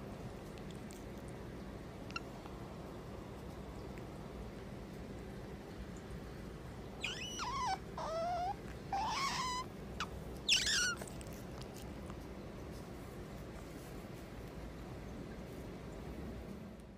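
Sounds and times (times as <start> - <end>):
otter whining calls: 7.0 - 11.2.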